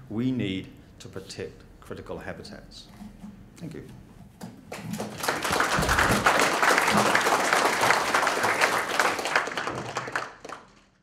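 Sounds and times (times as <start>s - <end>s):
audience applause: 4.7s - 11.0s.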